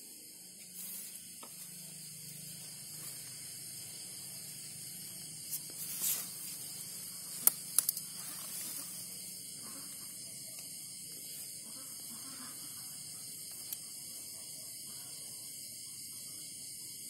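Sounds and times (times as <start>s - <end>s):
background hiss: 0.0s - 17.0s
sharp clicks: 7.3s - 8.1s.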